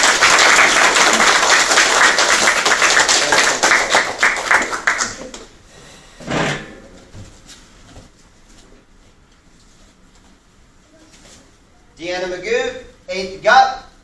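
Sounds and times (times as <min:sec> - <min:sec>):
crowd applauding: 0:00.0 - 0:05.5.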